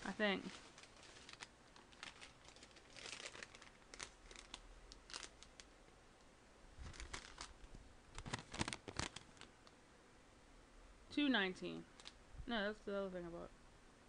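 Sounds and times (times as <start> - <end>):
shopping bags rustling and clicking: 6.8 - 7.6.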